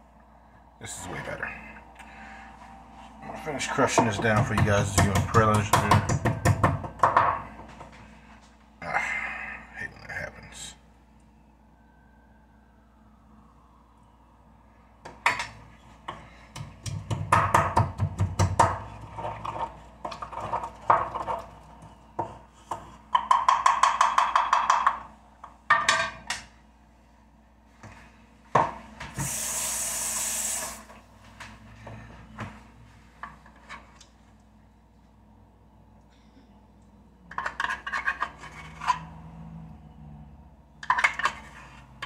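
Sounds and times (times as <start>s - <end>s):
steady hiss: 29.1s - 30.9s.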